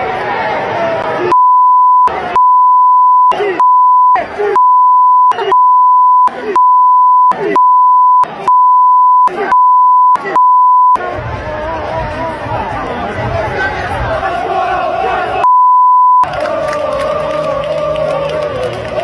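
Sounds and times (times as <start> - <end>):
crowd voices: 0.0 - 15.5, 16.2 - 19.0
censor bleep tone: 1.3 - 11.0, 15.4 - 16.3.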